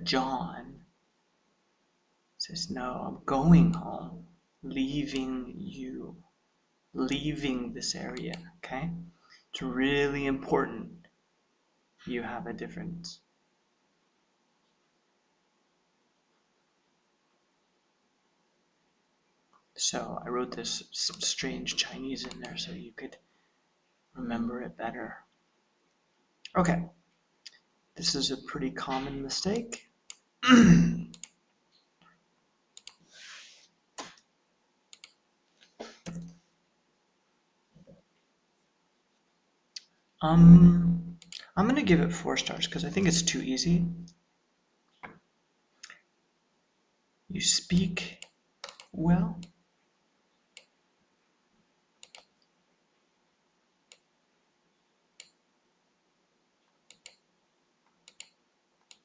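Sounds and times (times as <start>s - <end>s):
soft hiss: 0.0s - 59.0s
computer mouse clicks: 31.1s - 31.9s, 32.8s - 33.0s, 34.9s - 35.2s, 41.2s - 41.5s, 48.2s - 49.6s, 52.0s - 52.5s, 53.9s - 54.1s, 55.2s - 55.4s, 56.9s - 57.2s, 58.0s - 59.0s.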